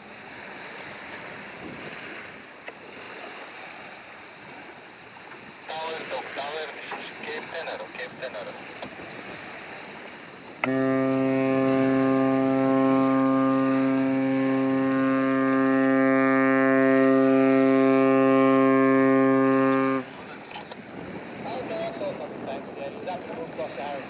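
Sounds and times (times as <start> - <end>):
ship's horn long blast: 10.6 - 21.4.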